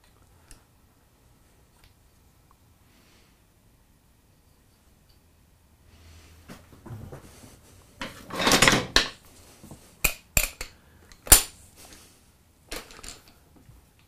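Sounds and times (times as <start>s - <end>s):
metal scraping rustle: 5.9s - 9.9s.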